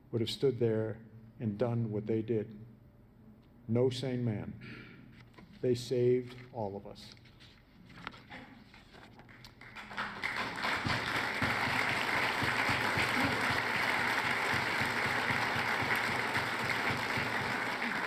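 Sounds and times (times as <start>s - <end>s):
large audience applauding: 9.3s - 18.0s.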